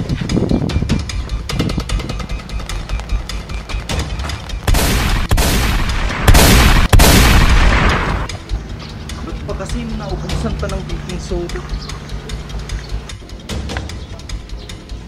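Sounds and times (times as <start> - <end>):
fast ticking beat: 0.4 - 6.3, 8.2 - 15.0
loud gunshots: 4.7 - 8.3.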